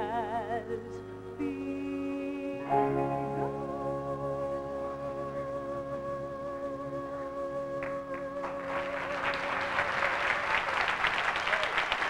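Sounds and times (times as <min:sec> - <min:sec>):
audience applause: 0:08.4 - 0:12.0.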